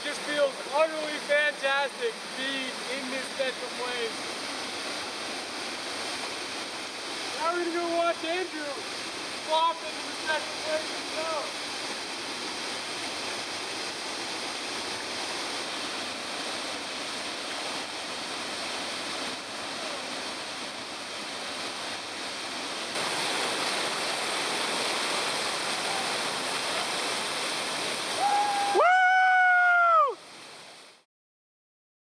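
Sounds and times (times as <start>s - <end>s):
waterfall rushing: 0.0s - 31.0s
loud high call: 28.1s - 30.2s.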